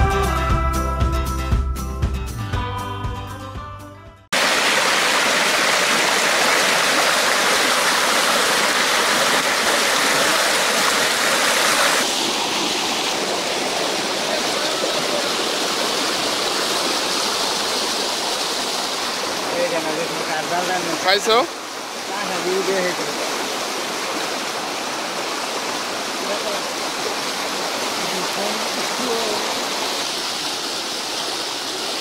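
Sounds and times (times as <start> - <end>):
music: 0.0 - 4.3
water rushing in torrent: 4.3 - 32.0.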